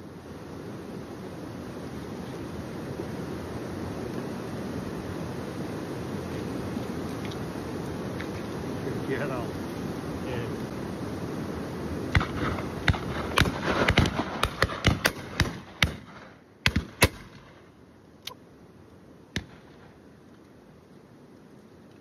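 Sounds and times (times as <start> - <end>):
shotgun shots: 12.1 - 17.6, 19.4 - 19.9.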